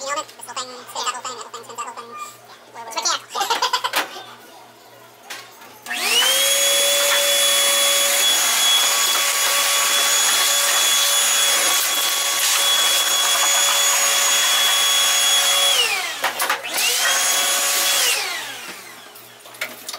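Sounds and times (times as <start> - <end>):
shop vac motor whining: 5.8 - 19.7.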